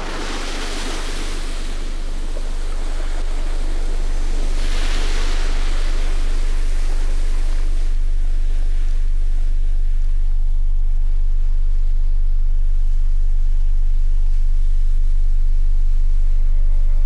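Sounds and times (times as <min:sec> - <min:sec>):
rushing hiss: 0:00.0 - 0:07.8
deep low drone: 0:00.0 - 0:17.0.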